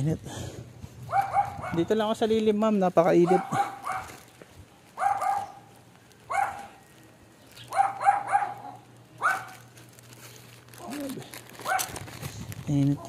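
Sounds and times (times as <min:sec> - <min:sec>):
dog barking high-pitched: 0:01.1 - 0:01.9, 0:03.2 - 0:04.2, 0:05.0 - 0:05.7, 0:06.3 - 0:06.7, 0:07.7 - 0:09.6, 0:11.6 - 0:12.0.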